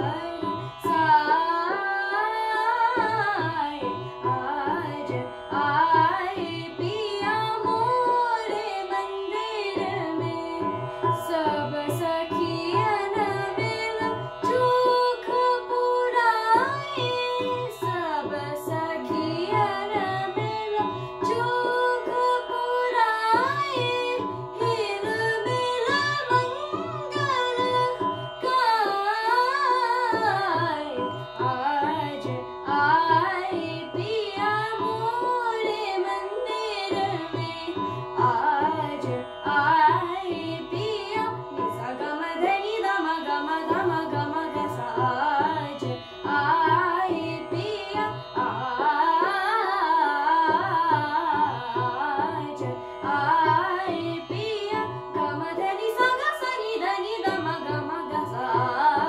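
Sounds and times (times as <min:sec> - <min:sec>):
tabla rhythm: 0:00.0 - 0:59.0
tanpura drone: 0:00.0 - 0:59.0
girl singing: 0:11.2 - 0:59.0.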